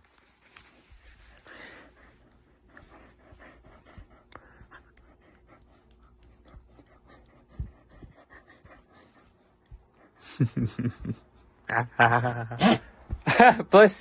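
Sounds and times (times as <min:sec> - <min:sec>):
dog panting: 0:00.9 - 0:11.6.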